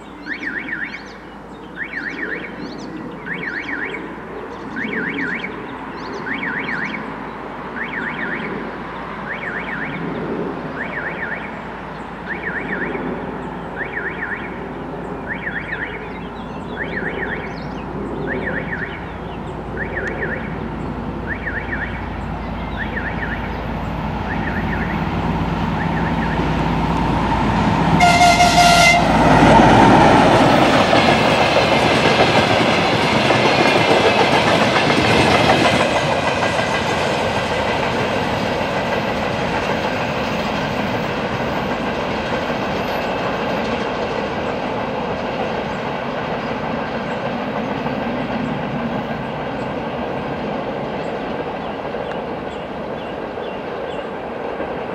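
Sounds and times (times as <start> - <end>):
diesel locomotive engine running: 11.5 - 54.9
train wagons rolling by: 15.2 - 54.9
locomotive horn blast: 27.9 - 29.5.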